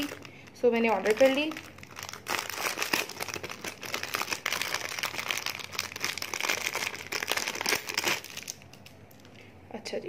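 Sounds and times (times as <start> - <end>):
plastic packaging crinkling: 0.0 - 9.4.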